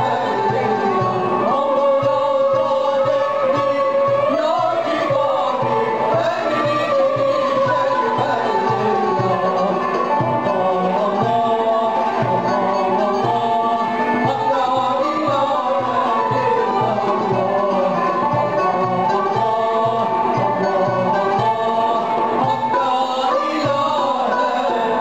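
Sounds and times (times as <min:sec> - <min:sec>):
man singing through microphone: 0:00.0 - 0:25.0
steady drum beat: 0:00.0 - 0:25.0
violin: 0:00.0 - 0:25.0.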